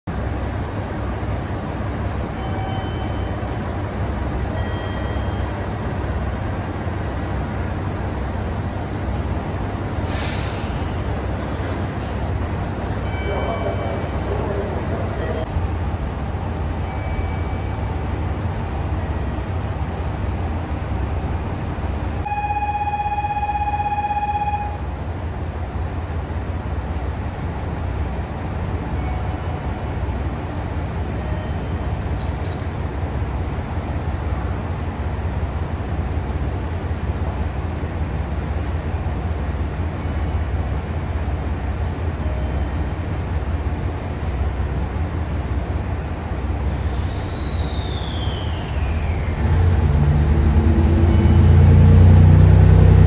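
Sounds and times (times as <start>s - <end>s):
diesel train idling: 0.1s - 52.3s
pitched signal tone: 22.2s - 24.9s.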